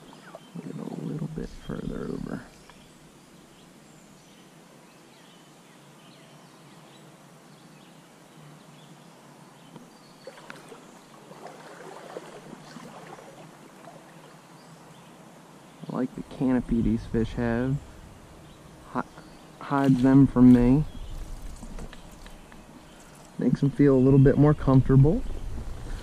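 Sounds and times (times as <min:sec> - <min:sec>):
small splashes and clicks: 0:09.8 - 0:14.4
stream water flowing: 0:09.9 - 0:26.0.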